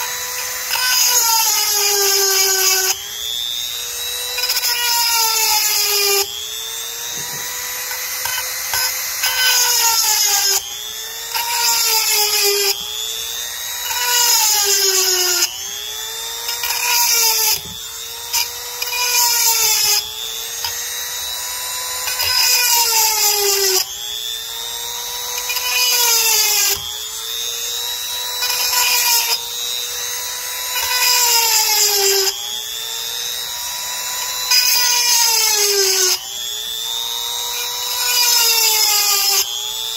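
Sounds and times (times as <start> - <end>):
grinding stone on chain: 0.0 - 3.0, 7.0 - 10.6, 13.8 - 15.5, 18.3 - 23.8, 25.3 - 26.9, 27.6 - 32.3, 34.0 - 36.2, 37.4 - 39.5
rotary tool motor whining: 0.0 - 39.9.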